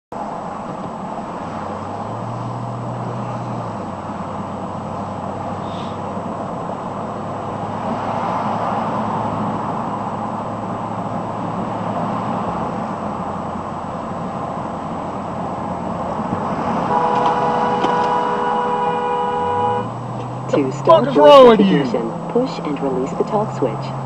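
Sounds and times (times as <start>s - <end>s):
road and engine noise inside vehicle: 0.1s - 24.0s
two-tone vehicle horn: 16.8s - 20.9s.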